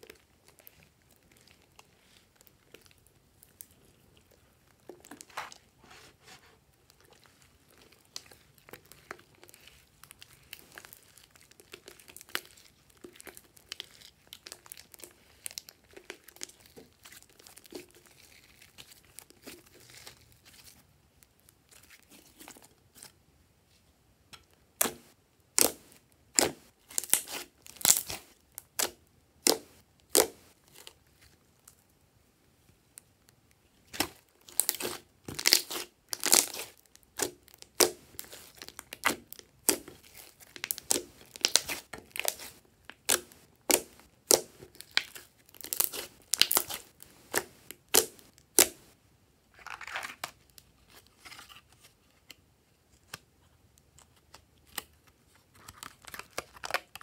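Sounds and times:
sticky slime popping and crackling: 6.9s - 20.5s, 24.8s - 30.9s, 33.8s - 49.0s.

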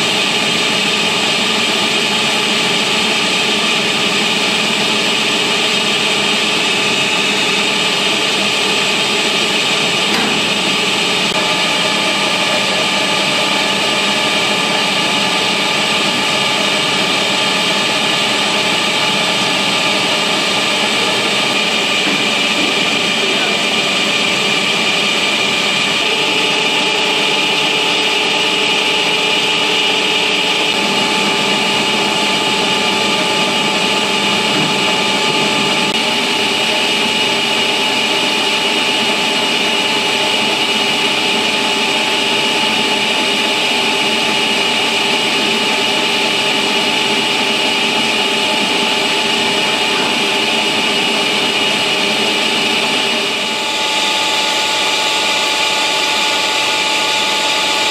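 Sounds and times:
boring mill machining metal: 0.0s - 57.9s
high mechanical whine: 0.0s - 57.9s.

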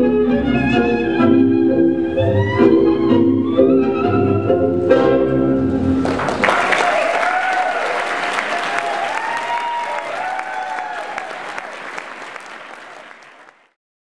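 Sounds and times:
audience applauding: 5.8s - 13.8s.

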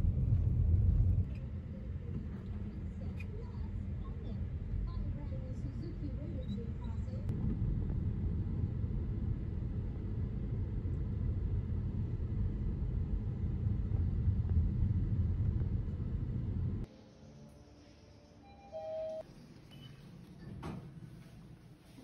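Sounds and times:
car engine and tyres rumbling: 0.0s - 6.3s, 6.9s - 16.9s.

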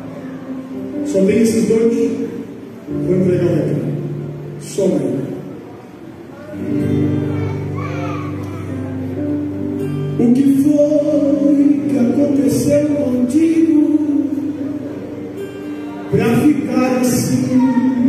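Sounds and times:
instrumental backing: 0.0s - 18.0s
man singing gospel hymn: 10.2s - 14.9s, 16.1s - 18.0s.

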